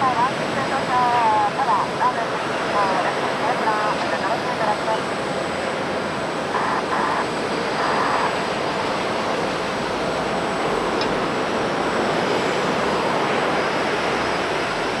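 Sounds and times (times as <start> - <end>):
jet engines rushing: 0.0 - 15.0.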